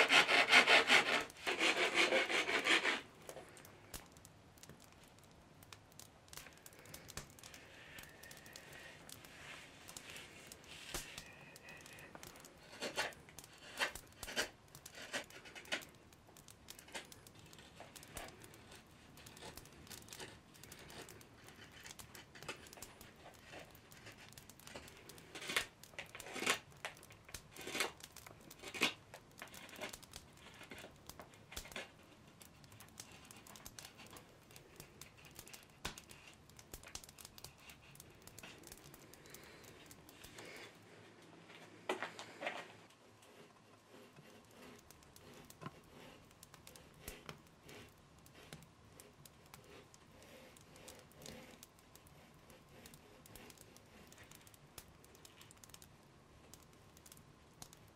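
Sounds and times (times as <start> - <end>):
scraping wooden bow stave: 0.0 - 3.1, 10.2 - 15.9, 24.4 - 30.9.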